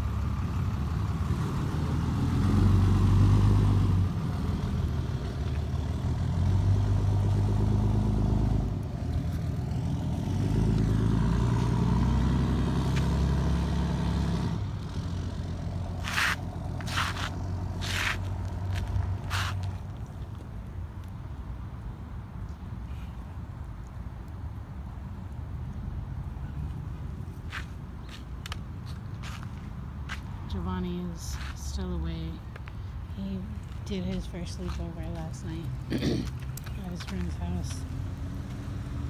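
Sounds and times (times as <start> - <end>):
shoes scuffing on asphalt: 16.0 - 19.9, 27.4 - 30.4, 31.3 - 31.6.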